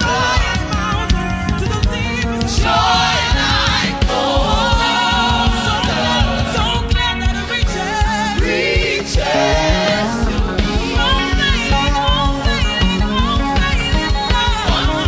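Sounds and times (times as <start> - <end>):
voices singing together: 0.0 - 1.2, 2.3 - 12.2
band with steady drum beat: 0.0 - 15.0.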